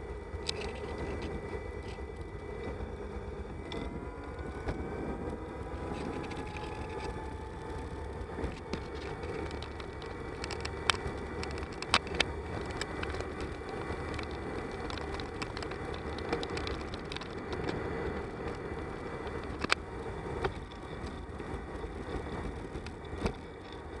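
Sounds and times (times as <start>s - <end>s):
bicycle tyre rumble: 0.0s - 24.0s
wind: 0.0s - 24.0s.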